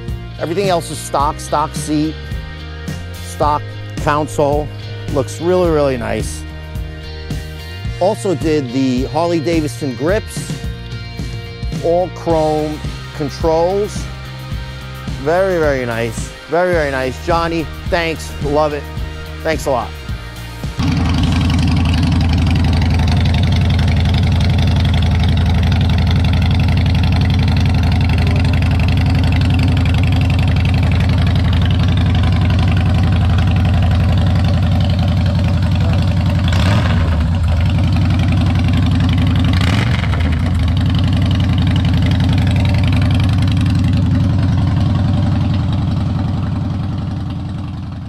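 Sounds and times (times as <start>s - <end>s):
motorcycle engine idling: 20.7s - 48.0s.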